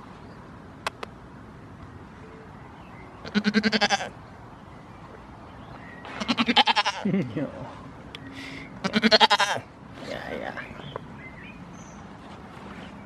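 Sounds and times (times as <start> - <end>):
goat bleating: 3.3 - 4.1, 6.2 - 7.1, 8.8 - 9.6.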